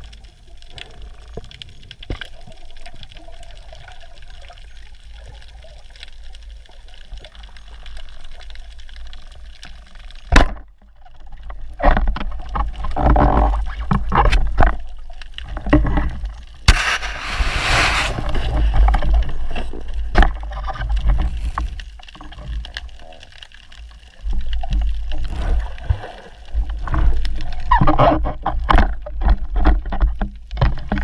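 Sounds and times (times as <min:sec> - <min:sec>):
faint crackles: 0:00.0 - 0:31.0
low underwater hiss: 0:15.5 - 0:27.6
scraping through seagrass: 0:16.7 - 0:19.8.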